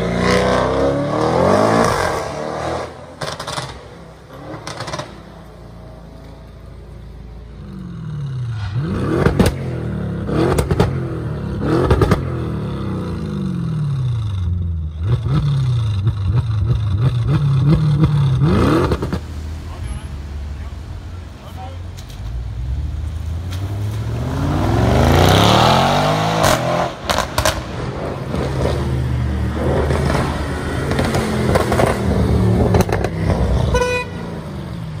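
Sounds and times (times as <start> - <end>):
car engine revving: 7.5 - 35.0
car accelerating hard: 22.8 - 33.7.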